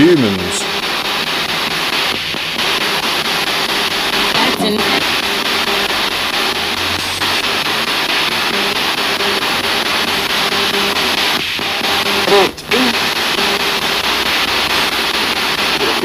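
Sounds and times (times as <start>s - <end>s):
fragments of voices and music: 0.0s - 16.0s
radio static: 0.0s - 16.0s.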